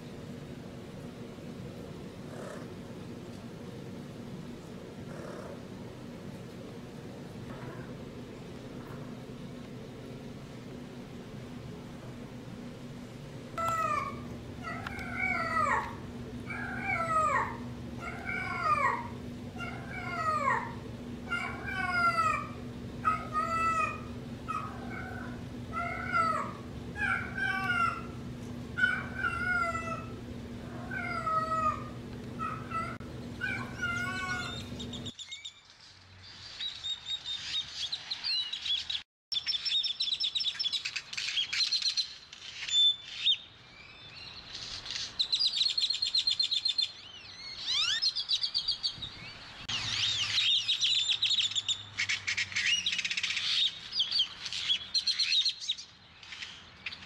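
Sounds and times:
steady low hum: 0.0 - 35.2
cat yowling: 7.5 - 8.0, 13.6 - 35.1.

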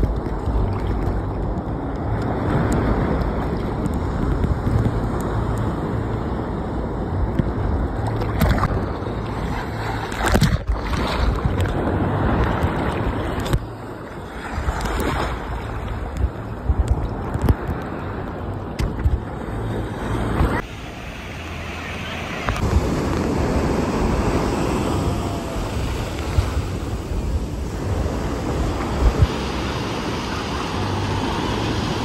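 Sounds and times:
ocean surf sloshing: 0.0 - 32.0
wave breaking with loud splash: 20.4 - 32.0.

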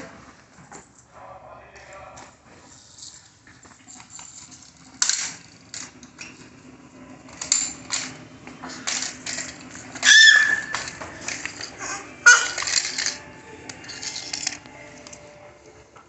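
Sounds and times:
plastic toys clattering on tiles: 2.9 - 15.3.

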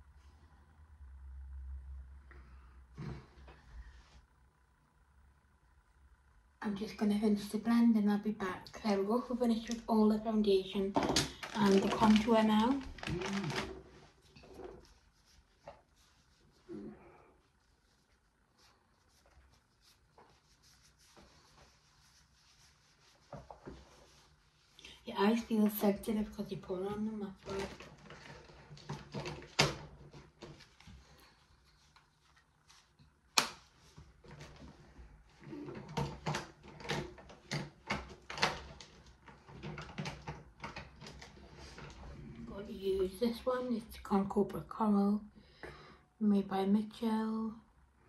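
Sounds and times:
rubbing of small objects: 10.8 - 29.2.

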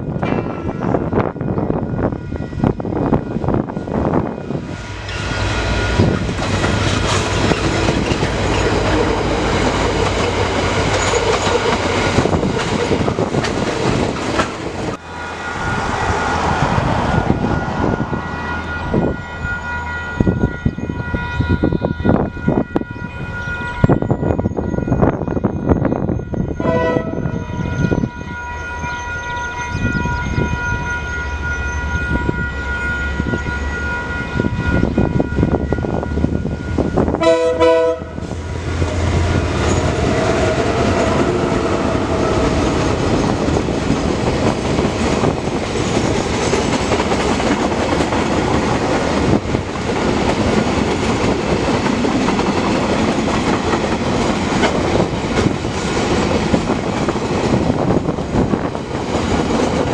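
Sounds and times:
diesel locomotive engines passing: 0.0 - 59.9
wagons clickety-clack over rail joints: 5.9 - 15.0, 42.9 - 59.9
level crossing bells ringing: 17.6 - 36.9
locomotive horn: 26.6 - 28.1, 36.2 - 42.8.

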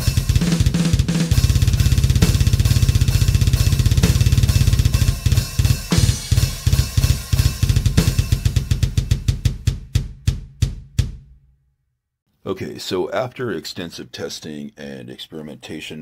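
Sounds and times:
snare and cymbals: 0.0 - 11.3
double bass drum kicks: 0.0 - 11.5.

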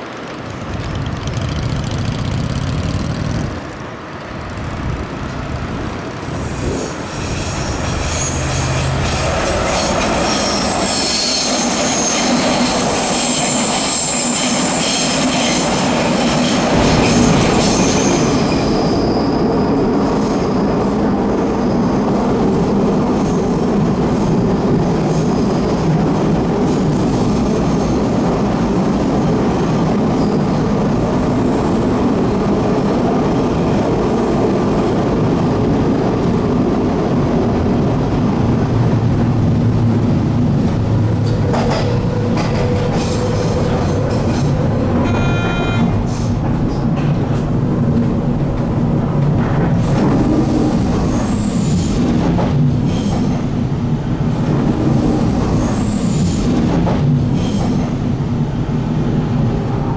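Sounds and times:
train running noise: 0.0 - 59.9
train wheels squealing: 5.7 - 20.7, 30.1 - 30.7, 42.6 - 46.4.

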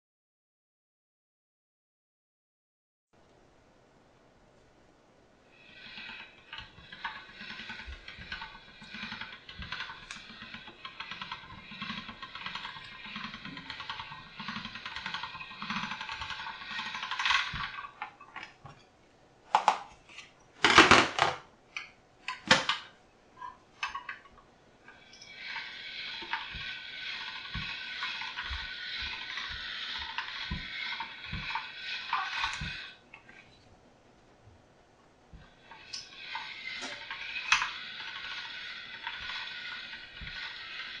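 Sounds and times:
pasta machine rollers clicking: 5.5 - 18.9, 22.3 - 33.7, 35.3 - 41.0.

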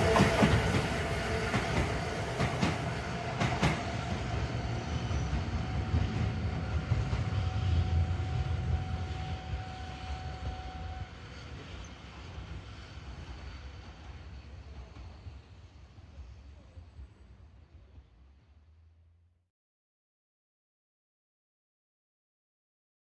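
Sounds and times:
tram wheels clacking on rail joints: 0.0 - 7.5
tram low rumble: 0.0 - 19.3.

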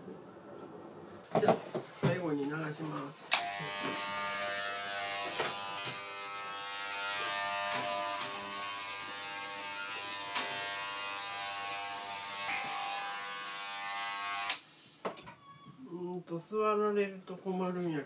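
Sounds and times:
electric clipper buzzing: 3.3 - 14.6.

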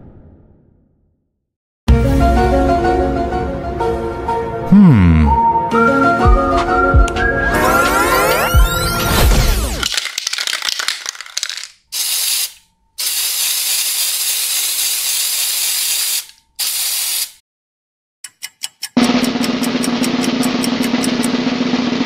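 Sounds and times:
spray can rattling: 9.8 - 17.4
spray paint hissing: 10.2 - 17.4.

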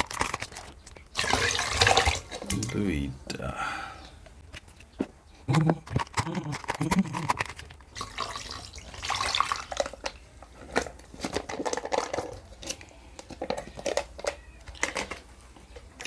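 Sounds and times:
plastic tubs clicking and knocking: 4.2 - 16.0.

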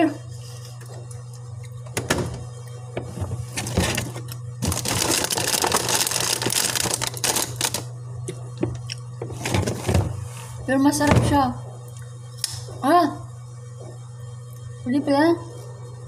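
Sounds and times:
steady low hum: 0.0 - 16.0
crinkling and rustling: 3.0 - 7.9, 9.3 - 10.2.

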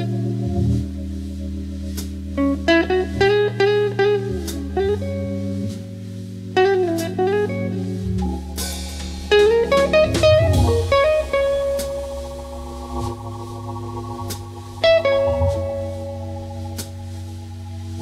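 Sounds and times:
drum kit: 0.0 - 3.6, 4.3 - 6.1, 6.8 - 18.0
bass line: 0.0 - 18.0
blues music: 0.0 - 18.0
electric guitar bending notes: 0.0 - 18.0.

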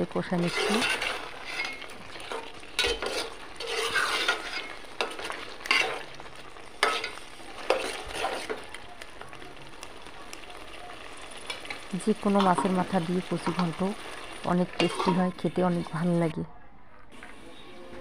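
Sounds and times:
food sizzling: 0.0 - 16.4, 17.1 - 18.0
metal spoon scraping a pot: 0.2 - 6.2, 6.8 - 8.6, 14.7 - 15.4.

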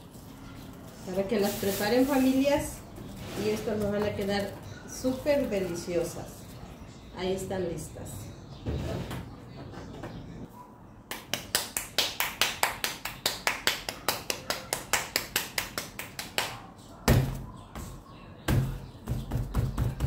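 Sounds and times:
hands patting dough flat: 18.5 - 20.0.

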